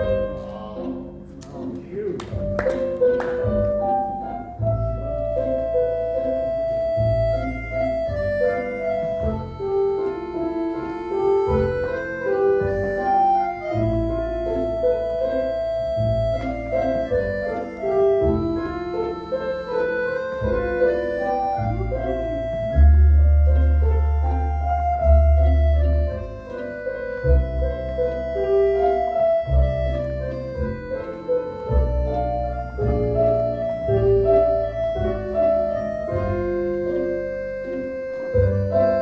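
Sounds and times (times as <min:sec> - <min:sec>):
instrumental tango music: 0:00.0 - 0:39.0.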